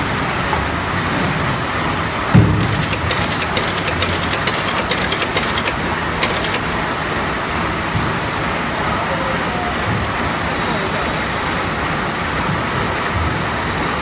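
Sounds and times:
motor and workshop drone: 2.7 - 6.8
riveting press clicking rapidly: 2.7 - 7.0.

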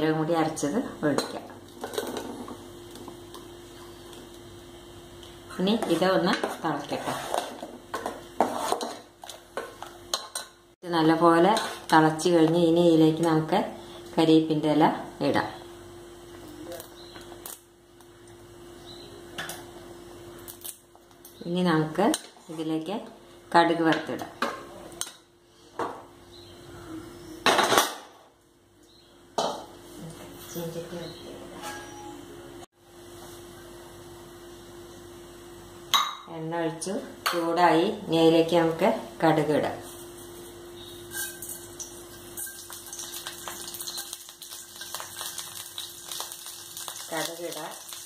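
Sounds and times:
crackles and pops: 16.2 - 18.4, 41.8 - 48.0
seeds sizzling in hot oil: 40.8 - 48.0.

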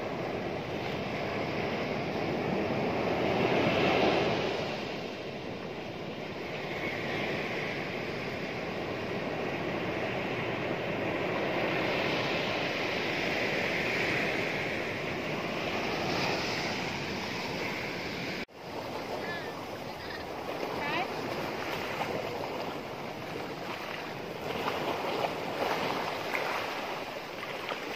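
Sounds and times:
surf washing over pebbles: 11.8 - 27.9.

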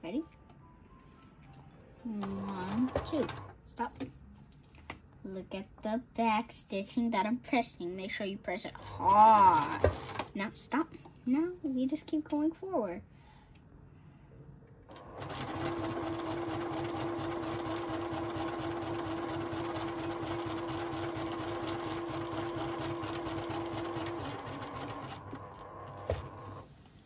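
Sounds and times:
sewing machine stitching: 2.2 - 3.5, 9.2 - 10.3, 14.9 - 26.6.

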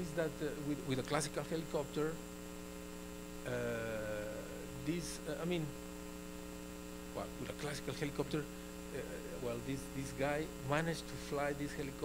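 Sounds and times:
electrical mains hum: 0.0 - 12.0
man's hesitation sound: 3.4 - 5.5
man murmuring syllables: 3.5 - 4.8, 9.0 - 9.6.

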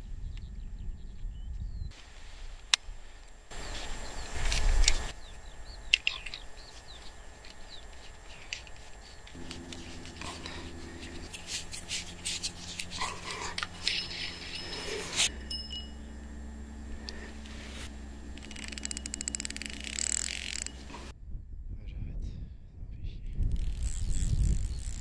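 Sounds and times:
small birds chirping: 0.0 - 21.1
low rush of noise: 2.0 - 23.2
fishing reel clicks: 18.3 - 20.9, 23.5 - 25.0.

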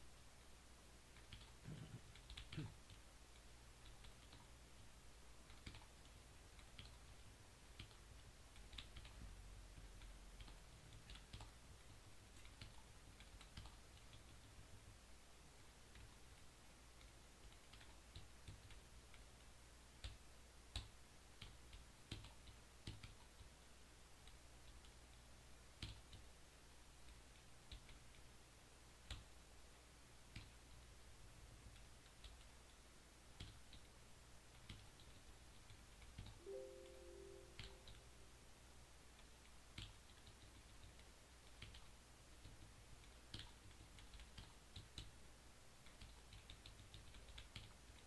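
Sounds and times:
low steady hum: 0.0 - 48.0
short pitched tones: 36.4 - 38.1.

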